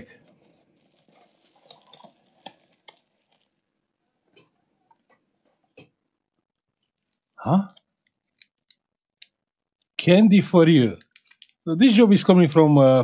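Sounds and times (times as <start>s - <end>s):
cardboard packing rustling: 0.2s - 3.7s.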